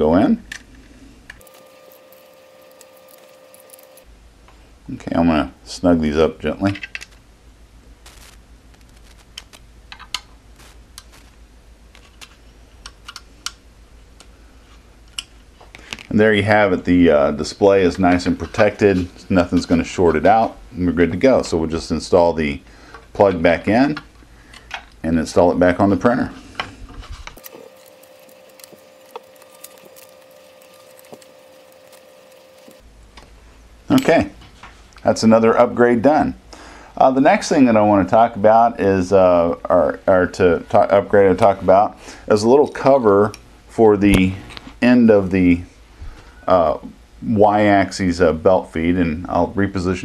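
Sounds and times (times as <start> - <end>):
faint steady hum: 0.0 - 50.0.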